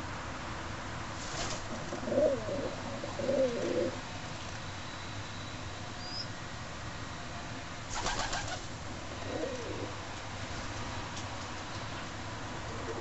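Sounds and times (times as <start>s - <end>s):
pigeon wings fluttering: 1.2s - 1.7s, 7.9s - 8.7s.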